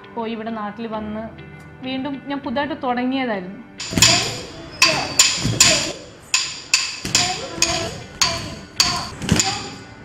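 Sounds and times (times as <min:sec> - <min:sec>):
wooden stick beating wooden block: 0:03.8 - 0:09.9.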